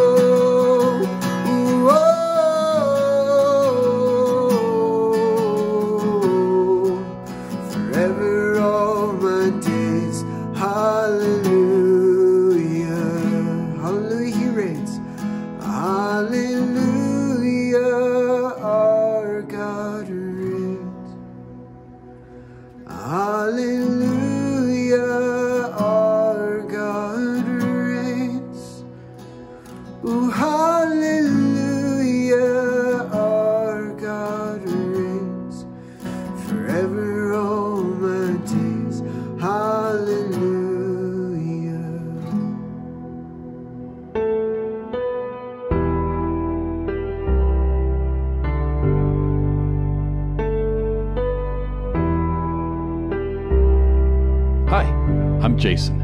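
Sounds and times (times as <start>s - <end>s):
man singing: 0.0s - 21.2s, 22.9s - 28.8s, 30.0s - 42.6s, 54.7s - 56.0s
acoustic guitar strumming: 0.0s - 47.6s.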